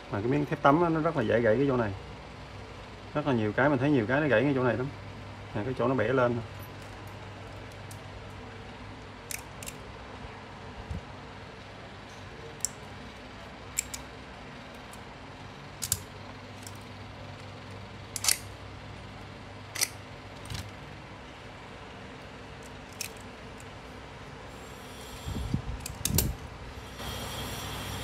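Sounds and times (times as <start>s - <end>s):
steady low hum: 0.0s - 28.0s
pliers clicking on steel wire: 13.7s - 14.1s, 15.8s - 16.8s, 18.1s - 18.5s, 22.6s - 23.7s, 25.8s - 26.4s.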